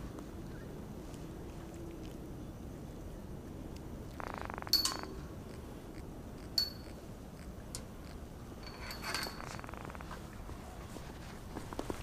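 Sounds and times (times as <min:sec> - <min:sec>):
fish croaking: 0:04.1 - 0:05.2.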